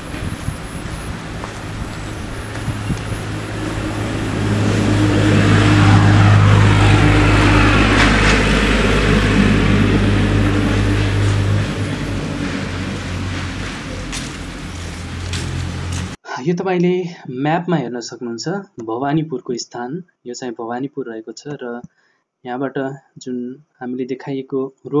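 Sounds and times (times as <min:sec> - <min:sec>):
heavy vehicle engine drone: 0:00.0 - 0:16.2.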